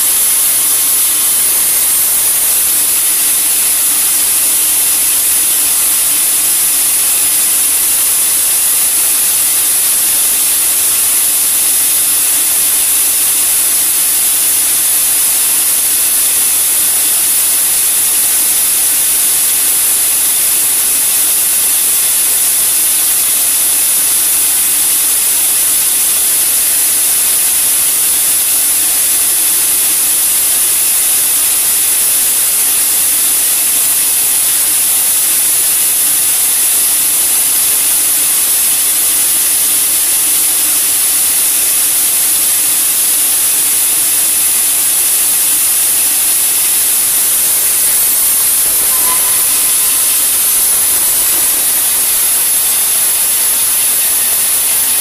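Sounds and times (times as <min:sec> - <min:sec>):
band saw running: 0:00.0 - 0:25.7, 0:40.3 - 0:55.0.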